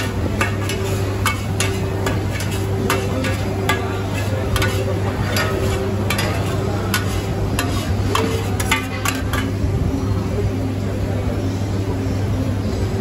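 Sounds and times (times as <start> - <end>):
food sizzling: 0.0 - 9.6
utensils clinking on pans: 0.0 - 9.7.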